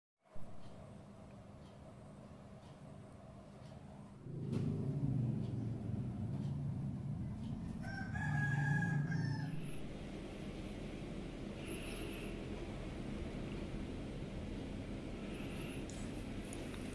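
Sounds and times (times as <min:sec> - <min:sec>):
low noisy sound: 0:00.3 - 0:16.9.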